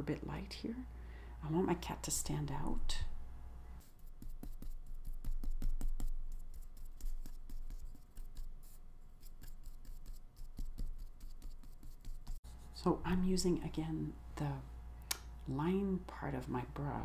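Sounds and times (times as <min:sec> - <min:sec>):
paintbrush tapping and scratching: 0:03.9 - 0:12.5.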